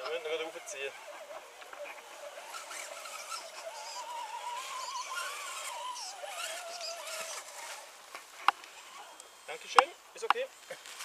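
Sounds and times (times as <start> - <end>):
electric motor and gear whine: 0.0 - 11.0.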